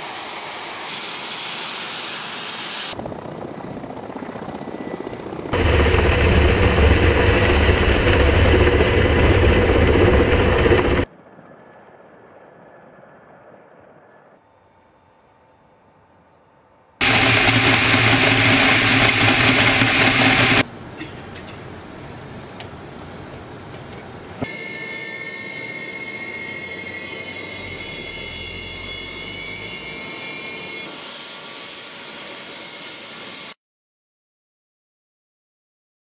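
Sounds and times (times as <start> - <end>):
jet aircraft roar: 0.0 - 11.1, 17.0 - 33.6
jet engine whine: 0.0 - 33.6.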